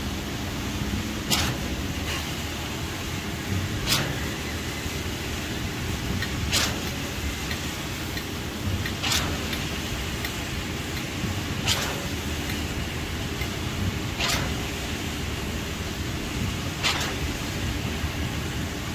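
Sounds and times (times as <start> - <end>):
pump hissing: 0.0 - 18.9.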